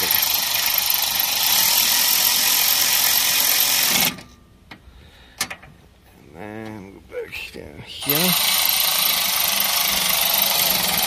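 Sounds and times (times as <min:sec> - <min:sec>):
cordless ratchet motor whirring: 0:00.0 - 0:04.2, 0:08.0 - 0:11.0.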